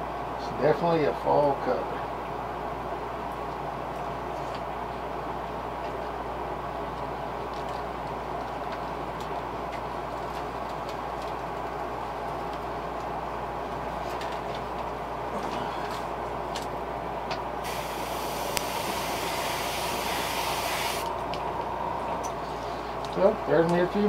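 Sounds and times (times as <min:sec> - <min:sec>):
steady background hum: 0:00.0 - 0:24.0
airbrush spraying: 0:17.6 - 0:21.2.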